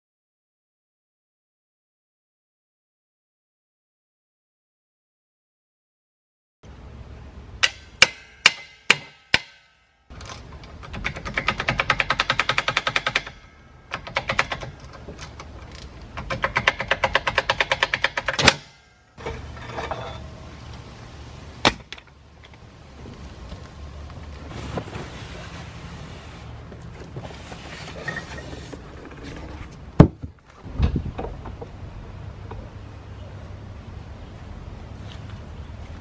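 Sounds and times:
sharp ringing metal knocks: 7.6s - 10.2s, 10.9s - 14.8s, 16.2s - 20.2s
sharp metal clanks: 7.6s - 15.4s.

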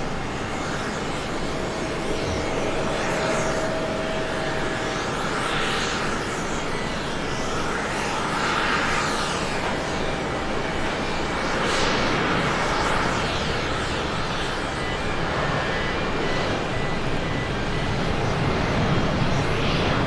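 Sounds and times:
jet engines at takeoff: 0.0s - 20.0s.

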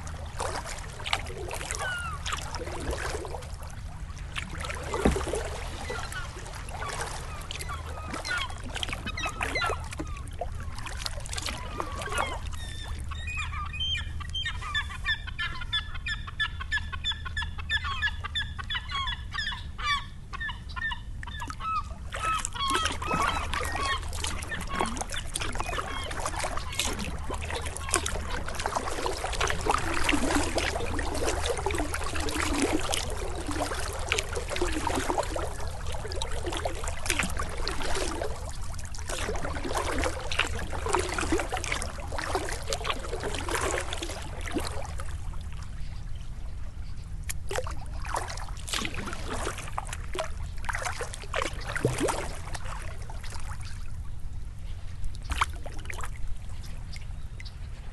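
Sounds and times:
water dripping off paddle: 0.0s - 3.6s, 4.2s - 12.8s, 21.4s - 45.2s, 47.3s - 53.4s
kayak paddle dipping in water: 0.0s - 15.1s, 21.2s - 57.8s.

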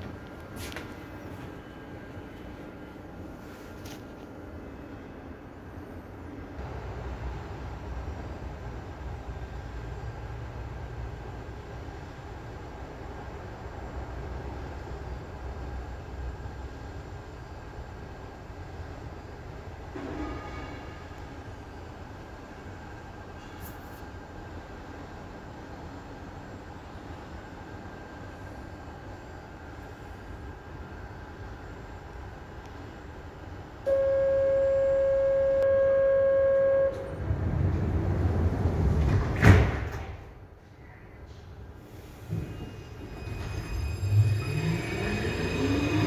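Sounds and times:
metro train low hum and hiss: 0.0s - 46.0s
train door warning tone: 33.8s - 37.5s
sliding doors rumbling shut: 37.0s - 40.4s.

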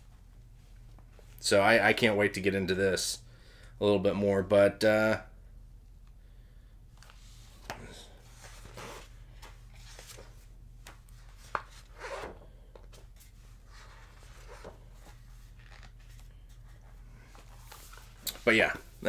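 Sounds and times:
book and paper rustling: 7.0s - 19.0s.

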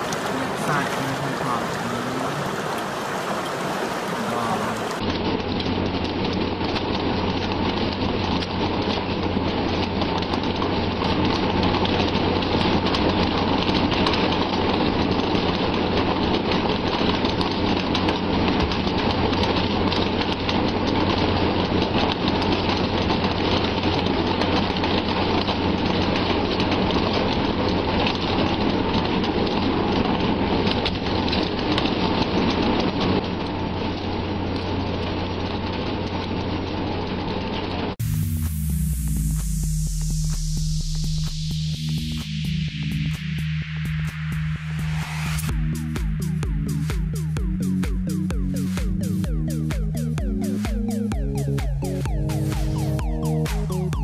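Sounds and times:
sea rushing: 0.0s - 5.1s
ship engine low hum: 0.0s - 54.0s
wind: 0.0s - 54.0s.

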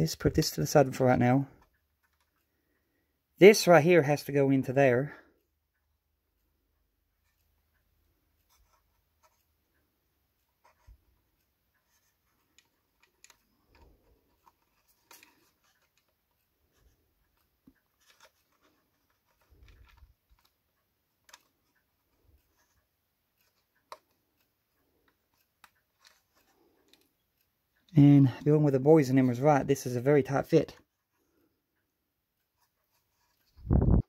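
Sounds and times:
small plastic parts clicking: 11.8s - 28.0s.

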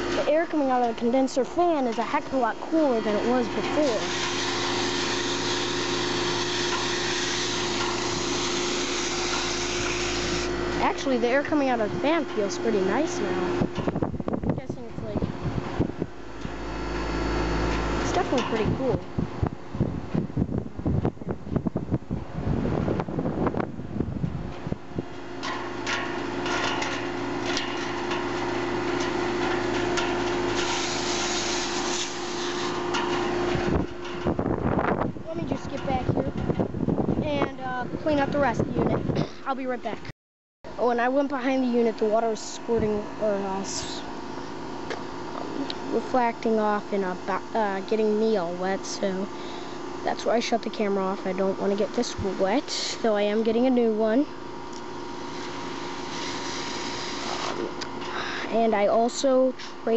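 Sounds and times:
air conditioner unit humming: 0.0s - 40.1s, 40.7s - 59.9s
fan air blowing on microphone: 0.0s - 40.1s, 40.7s - 59.9s
water hosing: 29.6s - 32.9s.

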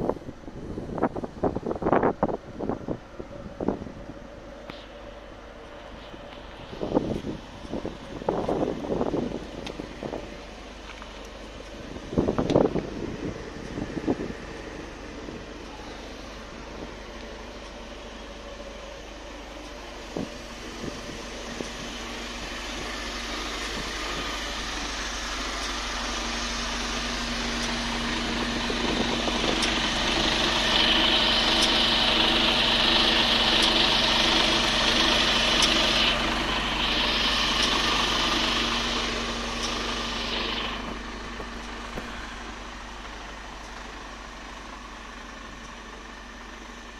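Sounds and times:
truck engine idling: 0.0s - 46.9s
loud hiss: 13.4s - 44.2s.

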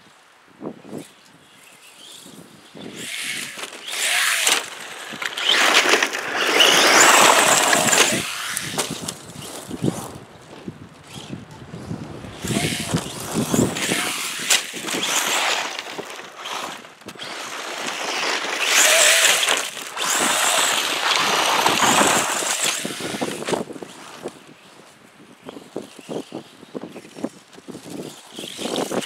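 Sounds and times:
tyres scrabbling through dirt: 1.6s - 29.0s
electric motor whining: 2.0s - 10.2s, 11.0s - 24.4s.

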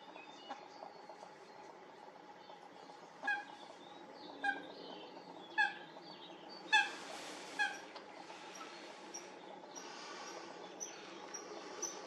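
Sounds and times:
faint background chirping: 0.0s - 12.0s
moorhen calling: 3.2s - 12.0s.

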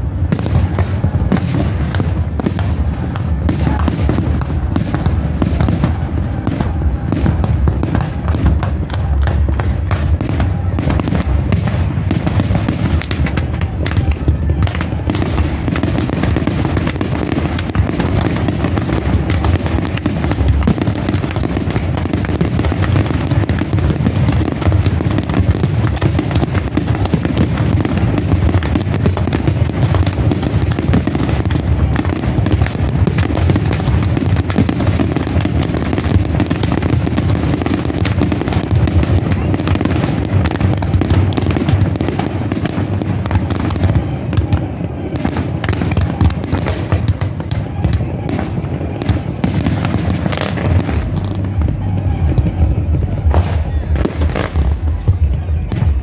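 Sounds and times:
fireworks bursting and crackling: 0.0s - 56.0s.

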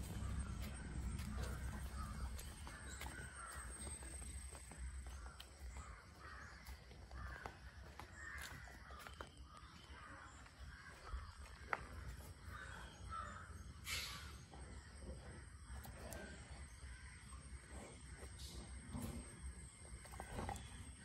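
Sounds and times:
crows cawing: 0.1s - 14.3s.

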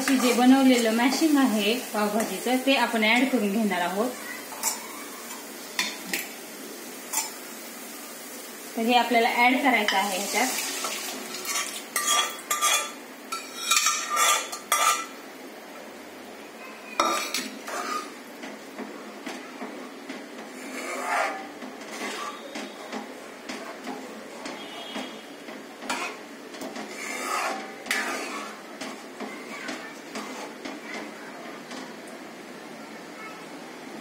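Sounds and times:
spoon scraping metal pan: 0.0s - 1.3s, 4.5s - 6.2s, 7.1s - 7.4s, 9.8s - 15.2s, 17.0s - 18.2s, 20.5s - 25.2s, 25.8s - 30.7s
ladle stirring thick mash: 17.1s - 18.6s, 20.0s - 31.8s.

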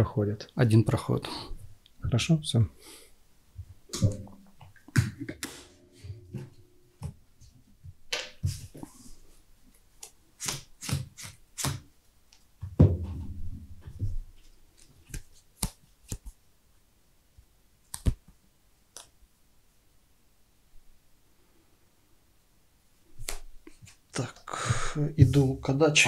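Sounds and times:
thump on playmat: 12.8s - 14.0s
cards clicking and tapping: 17.9s - 18.2s.

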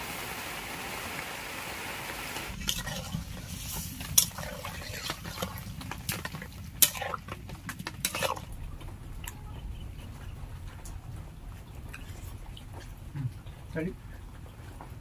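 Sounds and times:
metal spatula scraping pan: 2.6s - 8.5s.

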